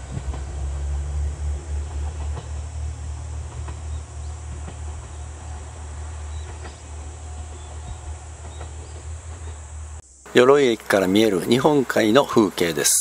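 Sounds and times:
low rumble: 0.0s - 10.0s
insects buzzing: 0.0s - 13.0s.

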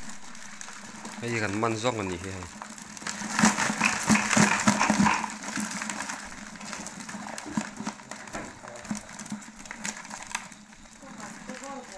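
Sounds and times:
crabs clicking in a metal pot: 0.0s - 11.9s.

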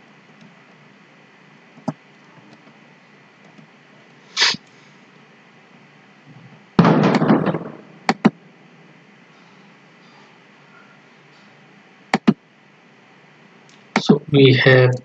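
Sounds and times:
rough burst of noise: 4.3s - 4.7s
short hiss: 4.3s - 4.9s
computer mouse clicks: 12.1s - 12.4s.

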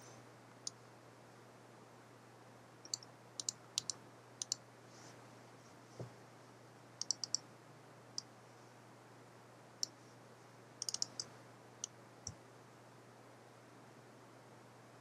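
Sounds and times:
faint low hum: 0.0s - 15.0s
computer mouse clicking: 2.8s - 4.6s, 7.0s - 7.4s, 10.8s - 11.3s.

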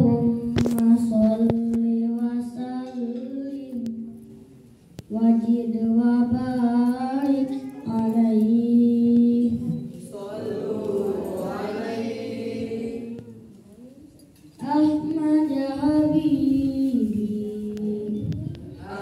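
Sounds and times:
boys singing in unison: 5.1s - 13.5s, 14.6s - 19.0s
chorus of voices singing: 9.6s - 13.4s, 18.8s - 19.0s.

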